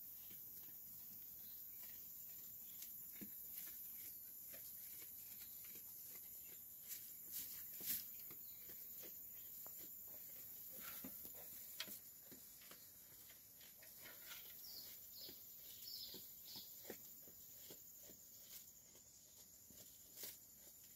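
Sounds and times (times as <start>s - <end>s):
sheep pulling and chewing hay: 0.0s - 20.9s
faint bird chirps: 14.0s - 17.3s.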